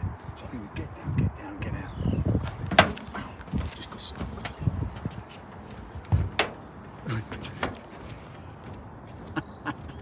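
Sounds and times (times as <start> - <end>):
footsteps on sheet-metal roof: 2.4 - 10.0.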